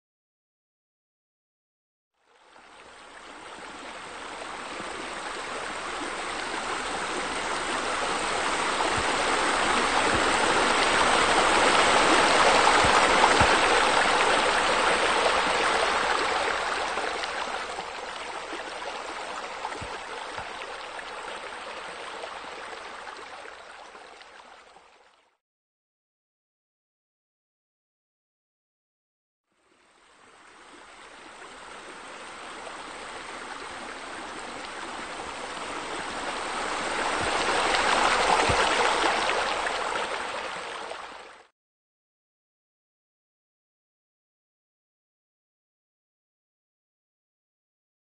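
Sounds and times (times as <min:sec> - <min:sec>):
rushing splashing water: 0:02.6 - 0:25.0, 0:30.3 - 0:41.5.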